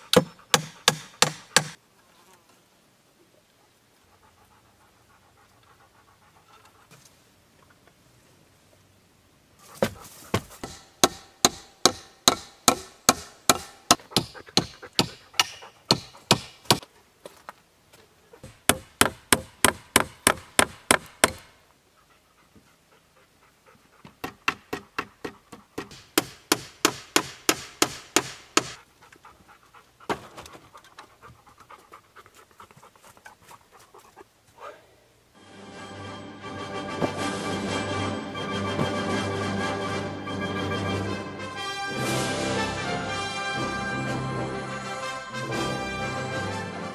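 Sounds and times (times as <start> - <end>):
hammer striking metal: 0.1 - 1.8, 10.6 - 16.8, 18.7 - 21.5, 24.5 - 28.8.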